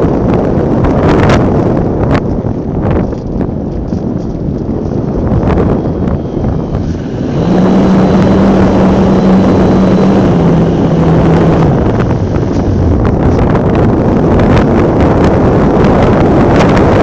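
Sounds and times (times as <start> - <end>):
model airplane motor and propeller: 0.0 - 17.0
wind rush over microphone: 0.0 - 17.0
steady hum: 5.3 - 17.0.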